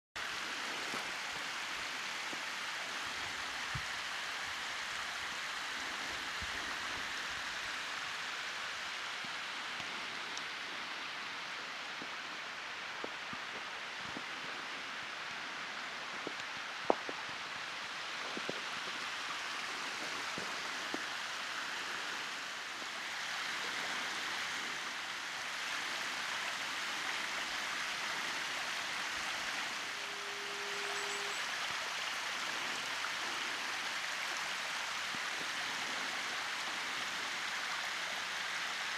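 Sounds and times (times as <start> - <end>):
waterfall rushing: 0.2 - 38.9.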